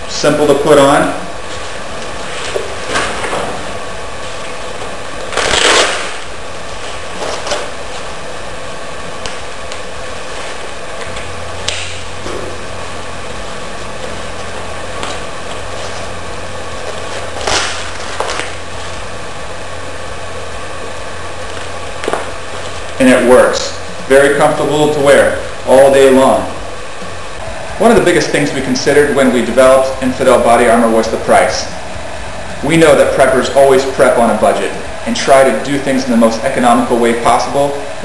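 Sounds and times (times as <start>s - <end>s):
hook-and-loop ripping: 5.2s - 7.7s, 16.8s - 19.0s.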